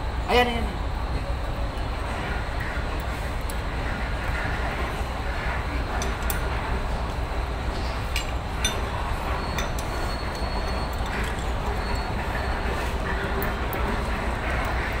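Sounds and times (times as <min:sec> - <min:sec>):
steady low rumble: 0:00.0 - 0:09.4.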